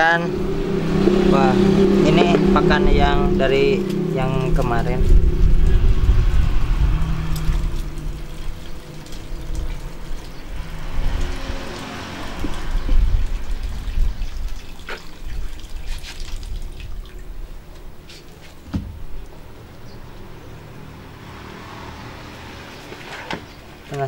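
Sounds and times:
low rumble: 0:00.0 - 0:18.1.

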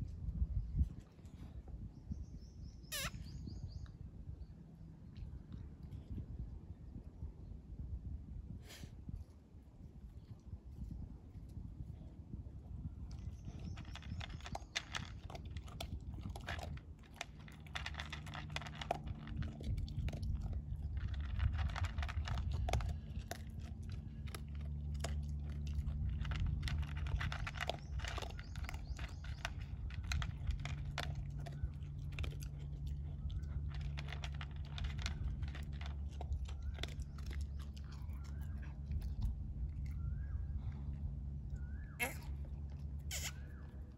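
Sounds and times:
low steady hum: 0:00.0 - 0:43.9
dog crunching dry food: 0:13.0 - 0:40.2.

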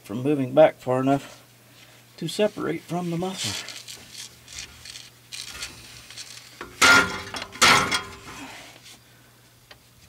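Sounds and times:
metal exhaust scraping and clanking: 0:05.4 - 0:08.5.

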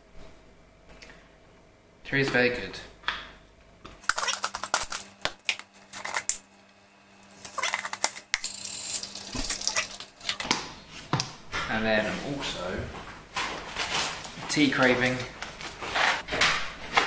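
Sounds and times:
plastic scoop clicking and scraping: 0:04.0 - 0:06.4, 0:07.4 - 0:10.5
powder pouring into cup: 0:07.4 - 0:10.4.

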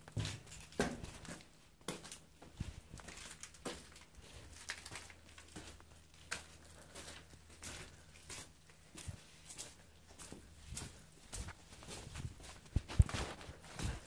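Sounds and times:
footsteps crunching over debris: 0:00.0 - 0:14.0.

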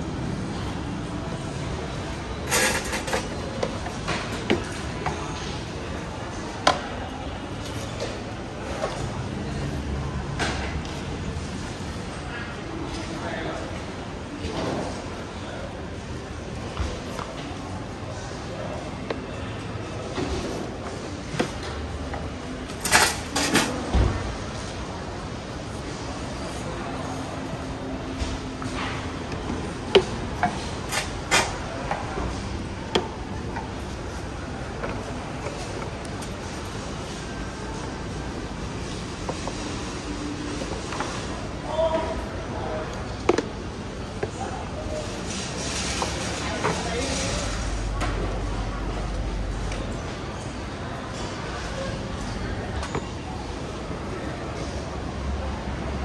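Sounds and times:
steady background hum: 0:00.0 - 0:56.0.

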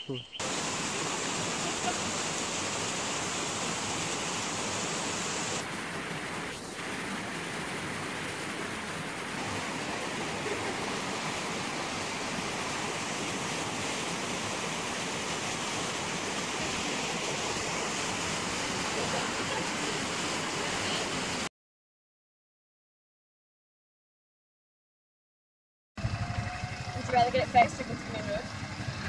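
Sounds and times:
water rushing over rocks: 0:00.4 - 0:21.5.

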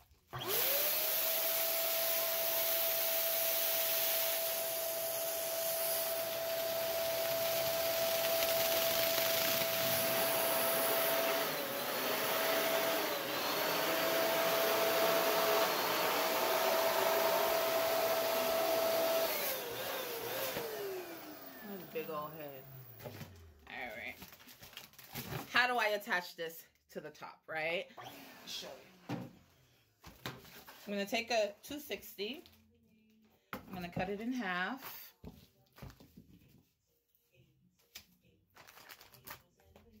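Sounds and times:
balloon inflator motor whine: 0:00.3 - 0:23.6.

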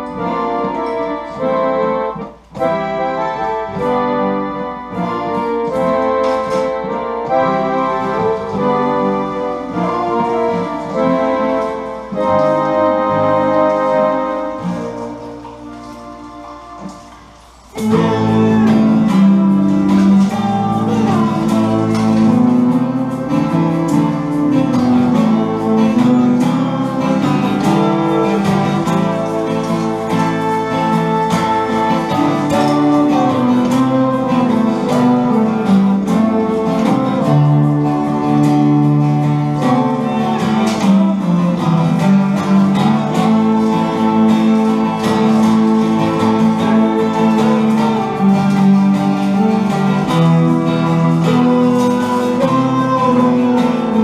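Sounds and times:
digital piano chords: 0:00.0 - 0:54.0
small band playing live: 0:00.0 - 0:54.0.

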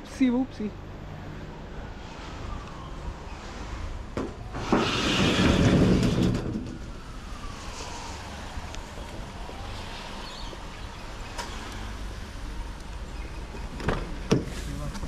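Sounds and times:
metal roller door rattling: 0:04.4 - 0:07.0.

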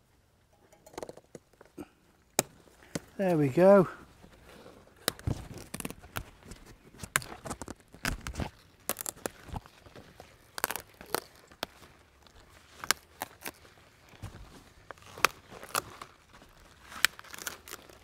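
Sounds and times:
leafy rustling: 0:02.6 - 0:18.0
crisp stalk snaps: 0:05.0 - 0:06.3, 0:07.0 - 0:09.8, 0:10.4 - 0:11.8, 0:14.9 - 0:16.2, 0:16.8 - 0:18.0.

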